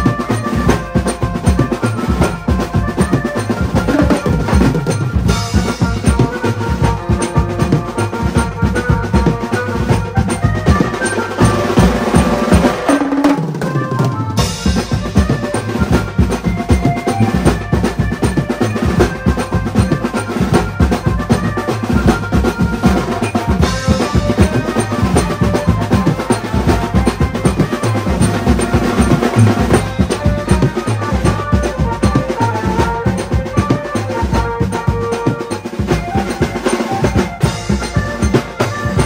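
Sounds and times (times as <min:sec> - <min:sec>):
music with heavy drum beat: 0:00.0 - 0:39.0.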